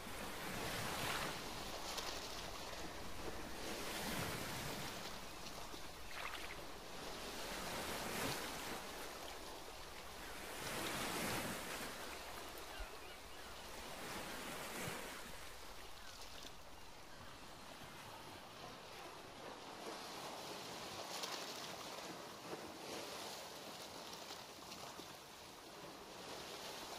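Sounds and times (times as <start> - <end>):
ocean waves washing: 0.0 - 20.8.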